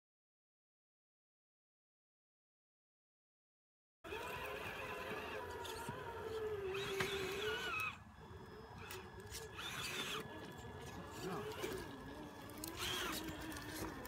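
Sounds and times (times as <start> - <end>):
electric motor whining: 4.1 - 14.0.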